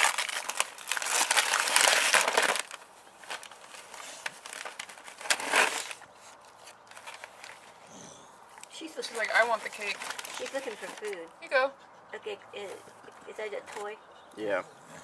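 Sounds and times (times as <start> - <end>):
wrapping paper ripping and crinkling: 0.0 - 7.7, 9.0 - 11.2.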